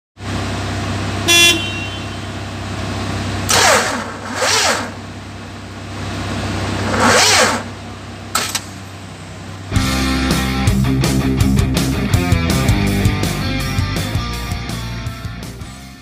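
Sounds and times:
low engine hum: 0:00.2 - 0:16.0
short horn-like beep: 0:01.3 - 0:02.4.

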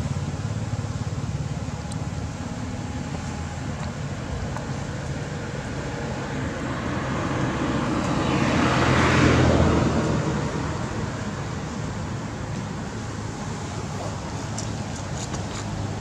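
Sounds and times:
vehicle passing by: 0:04.8 - 0:12.4.

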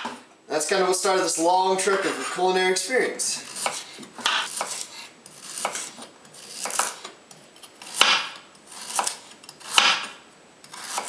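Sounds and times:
knife slicing carrot on board: 0:03.4 - 0:07.1, 0:07.8 - 0:11.0.

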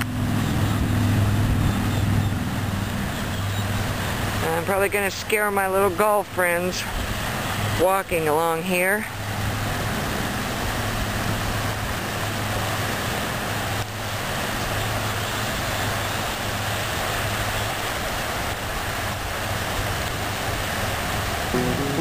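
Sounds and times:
low hum: 0:21.6 - 0:22.0.

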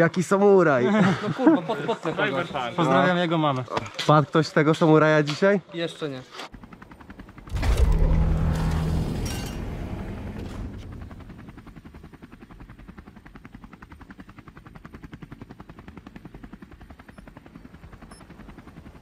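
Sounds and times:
loud hit with low hum: 0:07.5 - 0:11.3.

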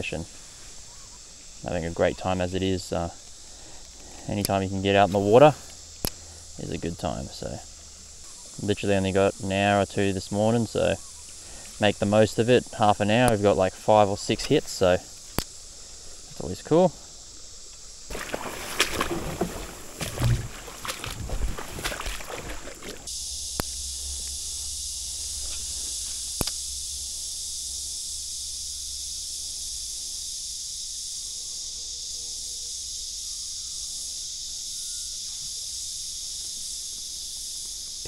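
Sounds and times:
high-pitched insect chorus: 0:00.0 - 0:38.0
water sloshing around a kayak: 0:18.1 - 0:23.1
sharp clicks: 0:26.4 - 0:26.6.

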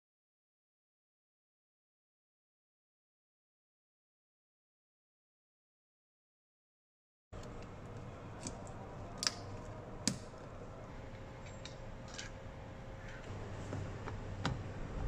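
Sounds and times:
low steady hum: 0:07.4 - 0:15.0.

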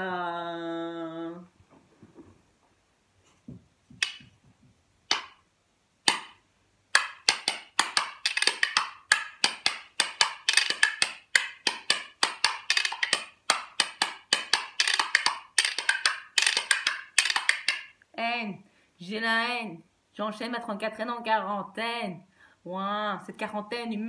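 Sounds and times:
wooden spoons clacking: 0:05.1 - 0:05.4, 0:06.1 - 0:18.0.

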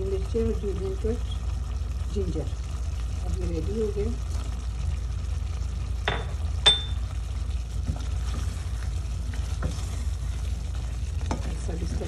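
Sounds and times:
steady low hum: 0:00.0 - 0:12.0
wooden spoon stirring thick curry: 0:07.1 - 0:12.0.

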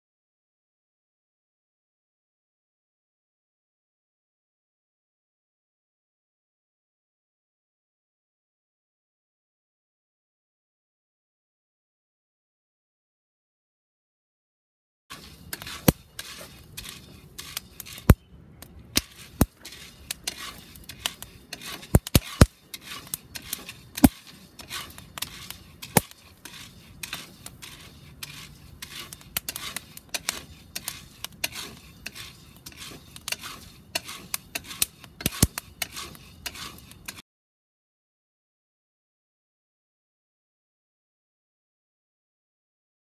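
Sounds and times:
coffee beans popping: 0:15.1 - 0:36.8
wooden spoon scraping beans in pan: 0:15.1 - 0:37.2.

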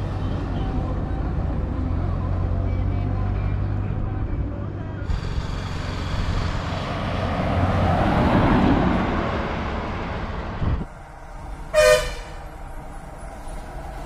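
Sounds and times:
bus passing: 0:00.0 - 0:14.0
bus horn toot: 0:11.7 - 0:12.5.

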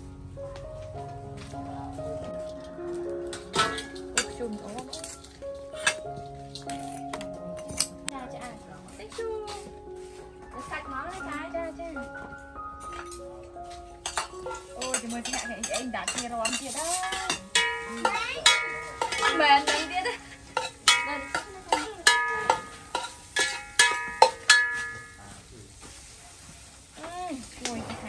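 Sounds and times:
ladle stirring in metal pot: 0:14.0 - 0:25.2
tongs scraping on wire grill: 0:14.0 - 0:25.2.

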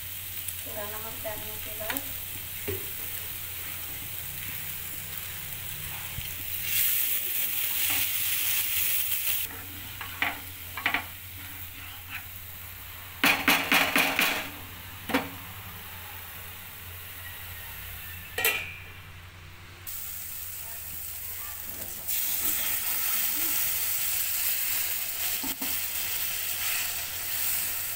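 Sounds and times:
spices sizzling in a pan: 0:00.0 - 0:18.2, 0:19.9 - 0:27.9
wooden spatula scraping a pan: 0:09.5 - 0:12.3.

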